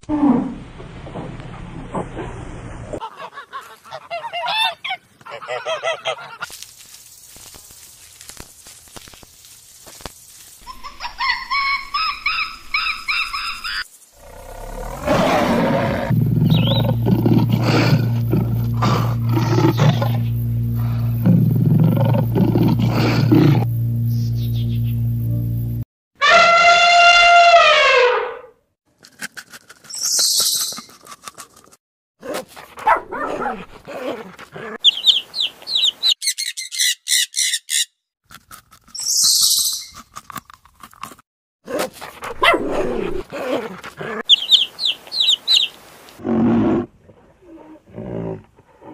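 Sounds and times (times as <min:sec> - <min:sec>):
animal calls: 0:10.6 - 0:23.6
tiger roaring growls: 0:14.2 - 0:23.7, 0:46.2 - 0:48.9
low hum: 0:16.1 - 0:25.9.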